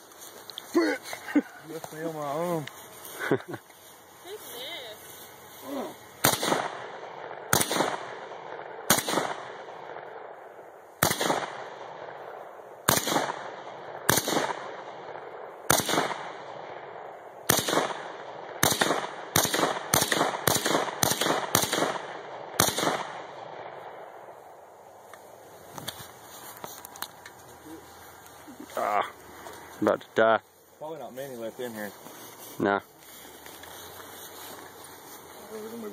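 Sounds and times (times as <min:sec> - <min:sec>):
rifle single shots echoing: 0:06.2 - 0:24.4.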